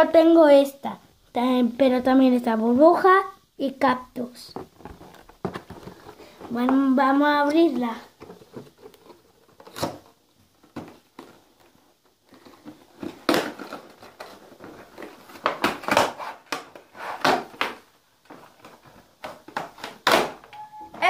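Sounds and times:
plastic packaging crackling: 7.6 - 20.3.

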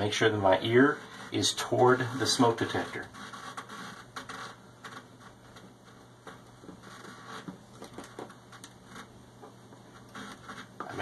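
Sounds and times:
plastic ticks and scraping: 2.7 - 11.0.

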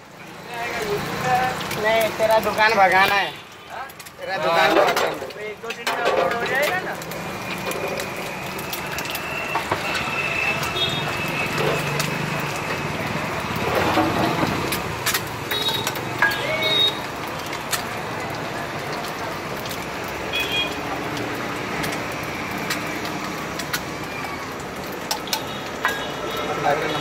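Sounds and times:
eggs sizzling on a griddle: 0.0 - 27.0
street traffic passing: 0.0 - 27.0
steel utensils clinking: 3.9 - 12.6, 13.6 - 19.8, 22.7 - 27.0.

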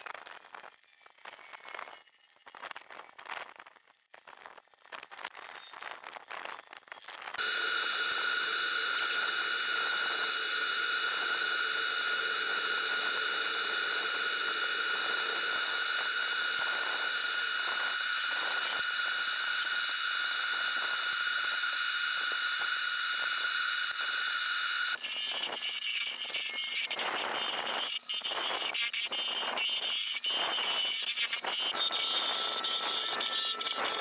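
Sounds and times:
low hum: 7.4 - 25.0
machinery high whine: 7.4 - 25.6, 31.5 - 34.0.

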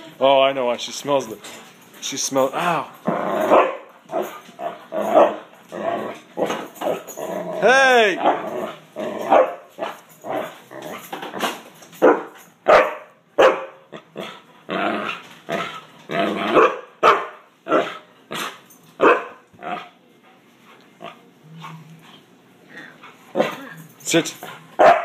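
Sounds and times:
dog barking: 3.5 - 3.9, 9.3 - 10.0, 12.0 - 13.8, 16.5 - 18.0, 19.0 - 19.4, 24.8 - 25.0.

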